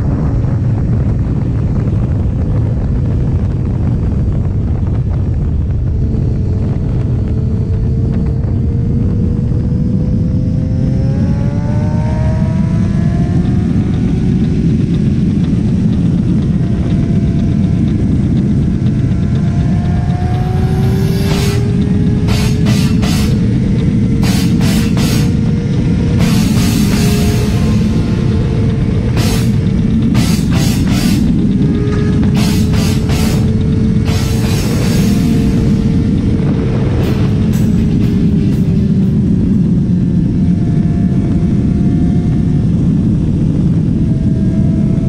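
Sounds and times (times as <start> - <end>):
motorcycle engine accelerating: 0.0 - 45.0
wind rush on microphone: 0.0 - 45.0.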